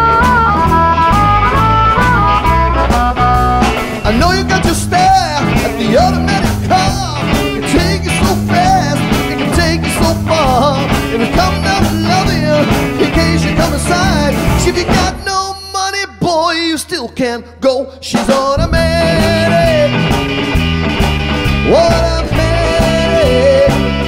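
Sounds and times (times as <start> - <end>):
blues band playing: 0.0 - 24.0
man singing: 3.9 - 20.2, 21.6 - 24.0.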